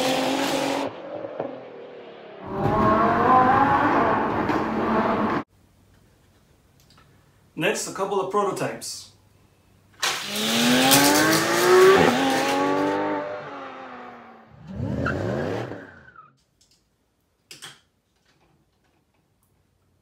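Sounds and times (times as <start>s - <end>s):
toy cars whirring down plastic track: 10.0s - 12.9s.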